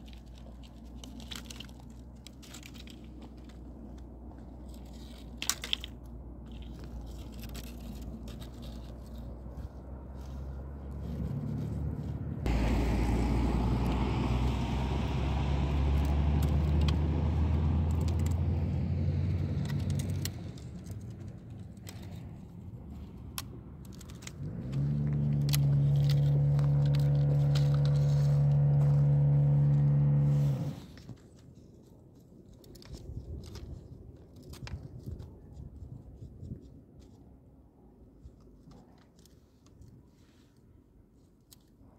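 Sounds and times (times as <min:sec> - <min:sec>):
puppies gnawing reed: 0:00.0 - 0:37.4
engine running: 0:00.2 - 0:31.1.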